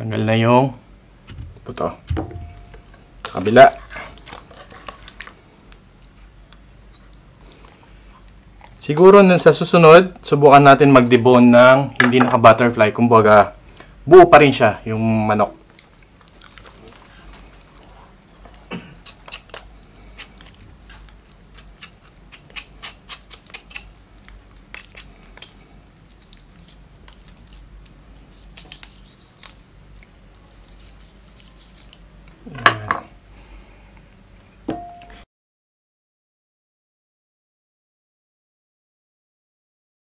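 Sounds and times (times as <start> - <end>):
knocks on wooden cutting board: 1.3 - 2.5
knife scraping chicken bones: 3.4 - 5.3, 19.0 - 24.0, 24.6 - 25.6, 28.3 - 29.6, 30.5 - 32.0.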